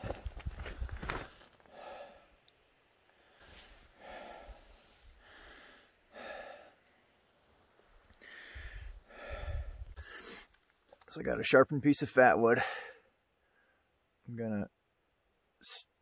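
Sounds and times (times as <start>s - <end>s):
steps crunching on rocky ground: 0.0s - 1.7s
person breathing heavily: 0.6s - 2.4s, 3.1s - 7.2s, 8.2s - 10.5s, 12.6s - 13.8s.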